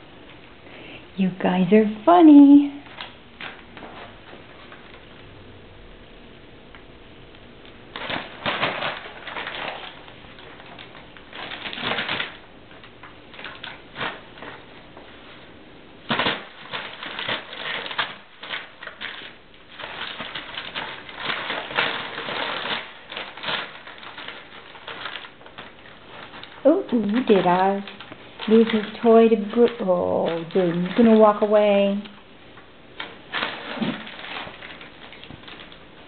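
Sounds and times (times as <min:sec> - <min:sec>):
packing paper crackling and rustling: 0:02.2 - 0:05.3, 0:07.6 - 0:36.0.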